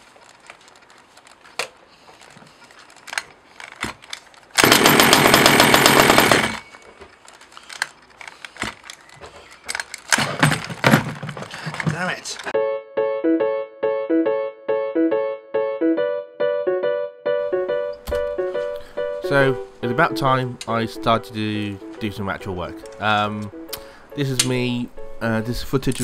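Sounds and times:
handling clicks and knocks: 0.0 - 5.0, 5.7 - 12.6, 17.9 - 19.6, 21.8 - 24.7
two-stroke engine running: 4.6 - 6.6.

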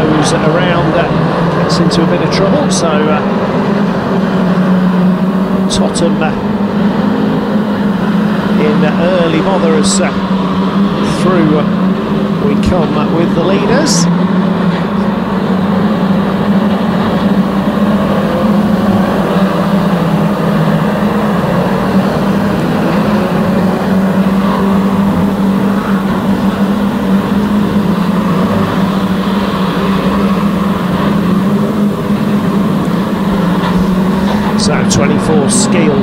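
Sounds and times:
racing car engines droning: 0.0 - 36.0.

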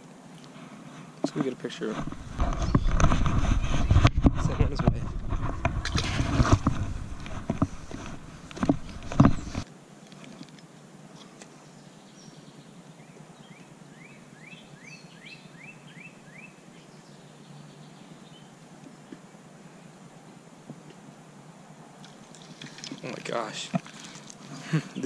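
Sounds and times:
rustling: 0.3 - 11.6, 22.0 - 25.0
bird singing: 11.1 - 19.2.

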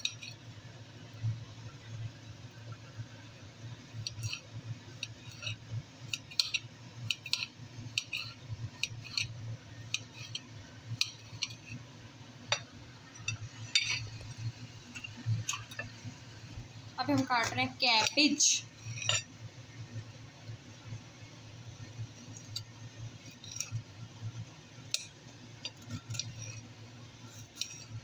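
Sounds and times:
steady low hum: 0.0 - 28.0
knife clicking on ceramic plate: 5.0 - 9.3, 9.9 - 11.6.

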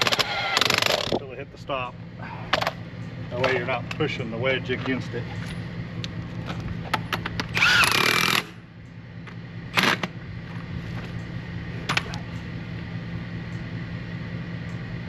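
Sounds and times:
impact wrench bursts: 0.0 - 1.2, 7.4 - 8.6
steady low hum: 0.0 - 15.0.

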